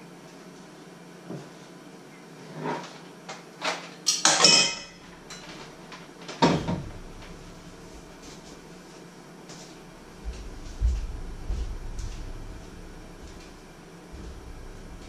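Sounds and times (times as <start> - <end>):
kitchenware clinking on wooden counter: 4.1 - 5.4
metal bowl clattering: 4.1 - 5.4.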